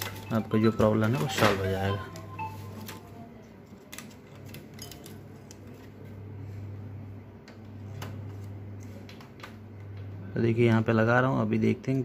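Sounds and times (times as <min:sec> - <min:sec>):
printer parts clicking and tapping: 0:00.0 - 0:03.0
steady low hum: 0:04.9 - 0:12.0.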